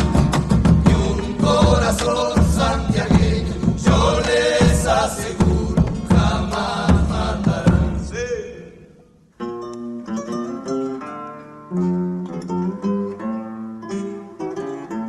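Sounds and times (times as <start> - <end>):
rhythmic acoustic accompaniment: 0.0 - 8.2, 9.3 - 15.0
voices singing folk song: 0.0 - 9.2.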